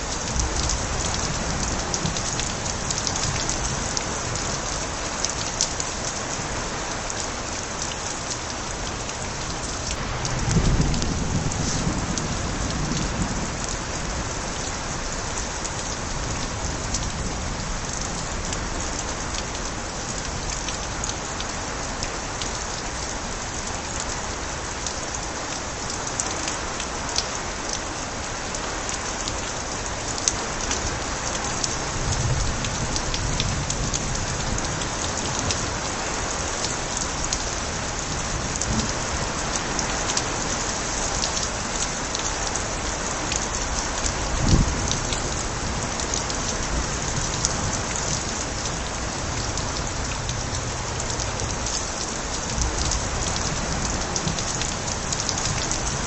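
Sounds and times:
steady rain pouring: 0:00.0 - 0:56.0
distant thunder rumble: 0:10.2 - 0:14.1.

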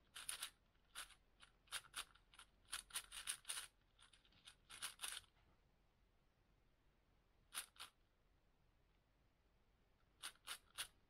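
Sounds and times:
rubik's cube clicking: 0:00.1 - 0:05.3, 0:10.2 - 0:11.0.

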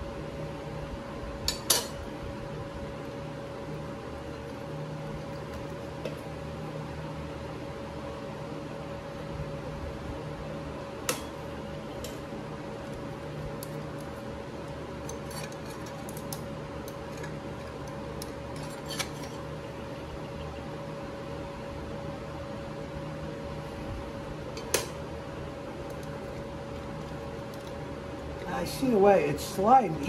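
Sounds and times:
steady background hum: 0:00.0 - 0:30.0.

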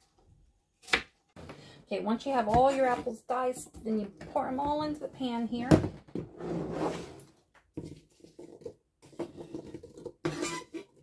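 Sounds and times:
scraping on plastic cutting board: 0:06.3 - 0:07.3.

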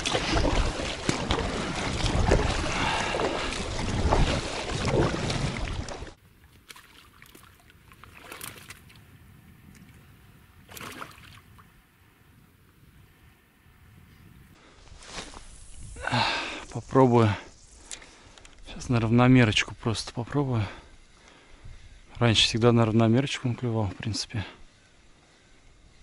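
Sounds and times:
paddle strokes and water splashing: 0:00.0 - 0:09.0.

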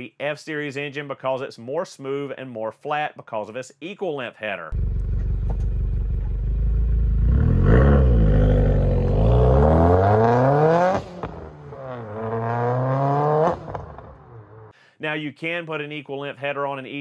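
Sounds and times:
car engine revving: 0:04.8 - 0:14.7.

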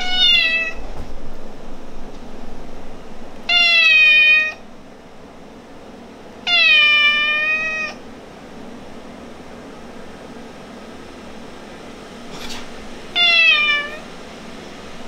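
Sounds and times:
cat meowing: 0:00.0 - 0:00.8, 0:03.5 - 0:04.6, 0:06.4 - 0:08.0, 0:13.1 - 0:14.1.

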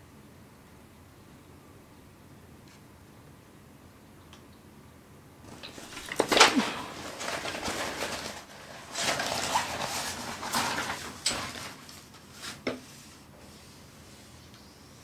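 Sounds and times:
plastic sheet rustling and crinkling: 0:05.4 - 0:14.4.

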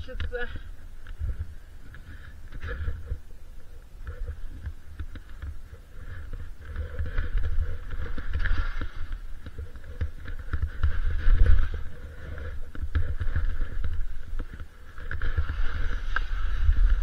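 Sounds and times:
wind buffeting microphone: 0:00.0 - 0:17.0
skis hissing through snow: 0:14.8 - 0:17.0.

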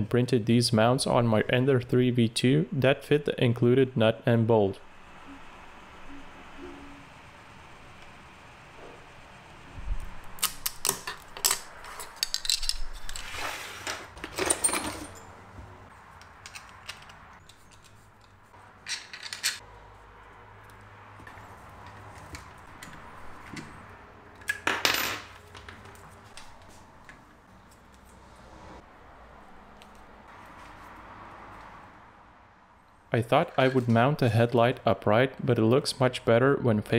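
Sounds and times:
metal and plastic parts clinking: 0:10.4 - 0:13.3, 0:16.2 - 0:19.6.

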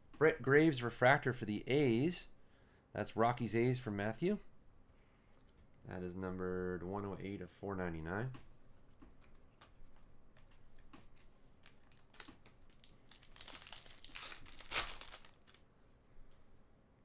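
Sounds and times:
foil wrapper crinkling and tearing: 0:11.6 - 0:15.6.

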